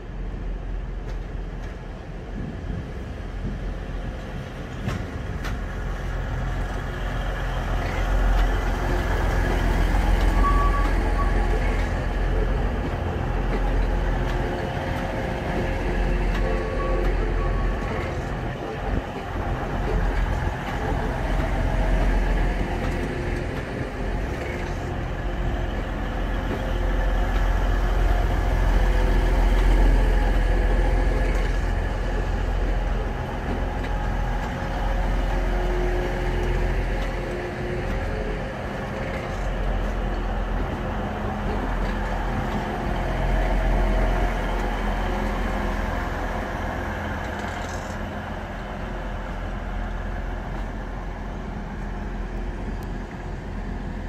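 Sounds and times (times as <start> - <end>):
train diesel engines droning: 0.0 - 54.0.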